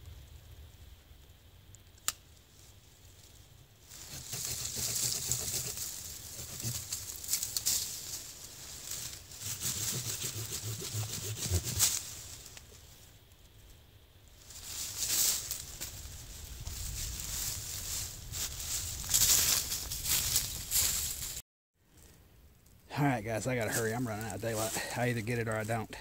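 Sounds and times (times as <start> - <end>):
knife scraping wooden stick: 4.0 - 7.2, 9.4 - 12.0.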